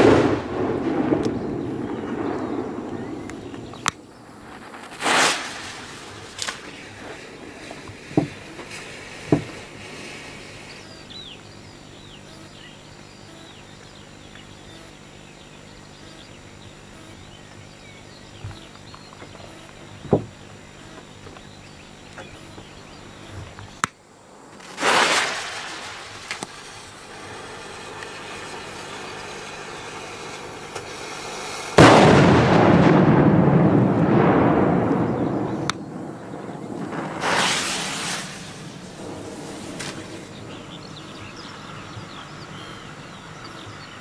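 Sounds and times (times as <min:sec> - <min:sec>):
loud firecracker blast: 0:00.0 - 0:11.1, 0:24.4 - 0:41.8
rushing burst: 0:00.0 - 0:11.1, 0:24.2 - 0:41.8
firecracker pop: 0:24.6 - 0:27.0.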